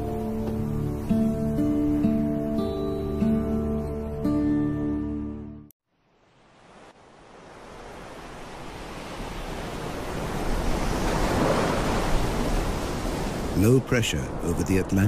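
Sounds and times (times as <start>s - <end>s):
ocean waves breaking: 6.4s - 15.0s.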